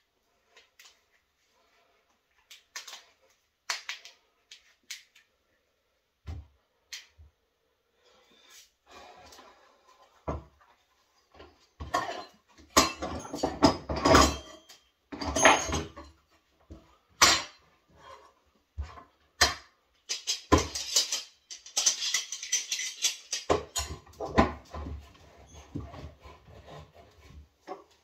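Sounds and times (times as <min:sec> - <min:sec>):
tools clattering and scraping: 0:08.9 - 0:16.3, 0:17.2 - 0:28.0.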